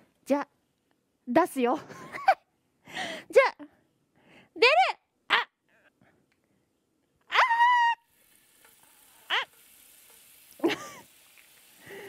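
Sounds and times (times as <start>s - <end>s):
butter sizzling in a frying pan: 8.1s - 12.0s.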